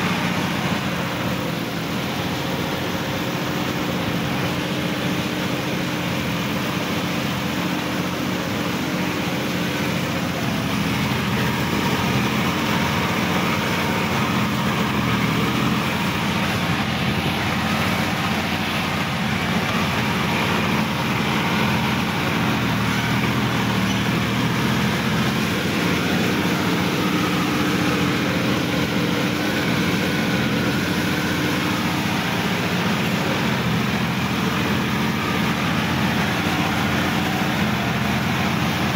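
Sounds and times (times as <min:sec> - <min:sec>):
tractor diesel engine under load: 0:00.0 - 0:38.9.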